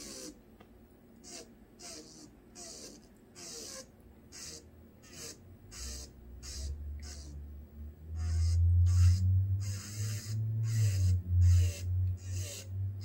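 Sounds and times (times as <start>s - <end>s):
electric nail drill grinding: 0.0s - 0.4s, 1.2s - 7.4s, 8.2s - 12.8s
low hum: 4.8s - 13.0s.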